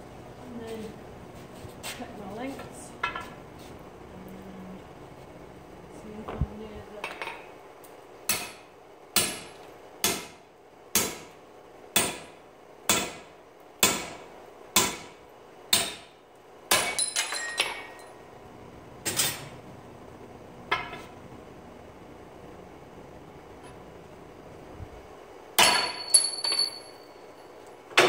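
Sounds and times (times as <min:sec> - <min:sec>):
light metal clinks: 0:25.8 - 0:27.5.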